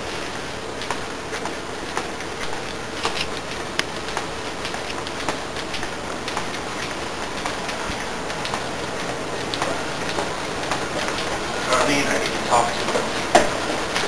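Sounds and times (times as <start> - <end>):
steady hiss: 0.0 - 14.0
footsteps on hard floor: 12.2 - 14.0.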